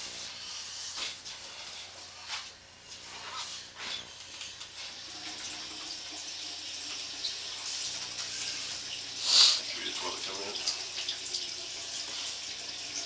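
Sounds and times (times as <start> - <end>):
running water rushing: 5.0 - 13.0.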